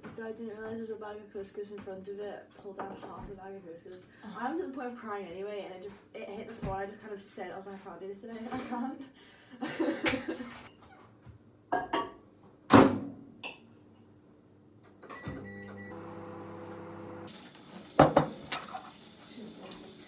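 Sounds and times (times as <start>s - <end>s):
short beeps: 15.1s - 16.0s
appliance hum: 15.1s - 20.0s
dishes and utensils clattering: 18.0s - 19.0s.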